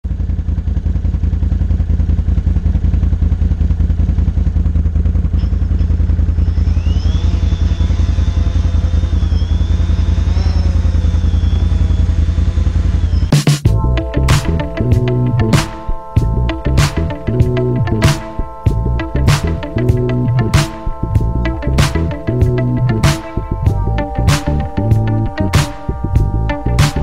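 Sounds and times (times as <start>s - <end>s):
atv engine idling: 0.1s - 15.5s, 18.7s - 27.0s
quadcopter motors whining: 5.1s - 13.3s.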